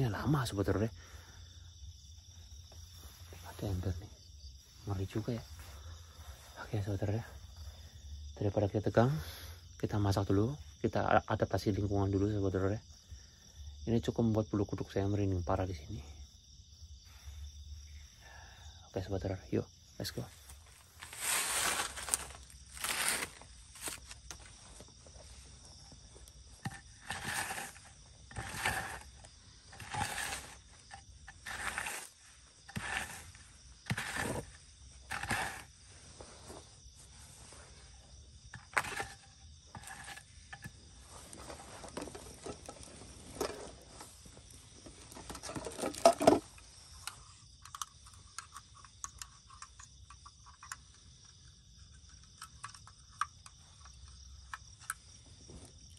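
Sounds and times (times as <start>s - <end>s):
rustling and scraping on dirt floor: 0.0s - 8.4s, 20.0s - 55.9s
insects chirring: 0.0s - 55.9s
camping gear clatter: 20.1s - 55.9s.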